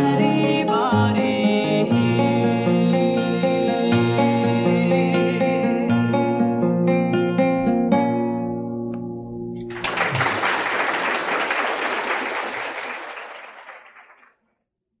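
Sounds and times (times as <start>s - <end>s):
guitar chord ringing: 4.0s - 9.7s
audience applause: 9.7s - 14.4s.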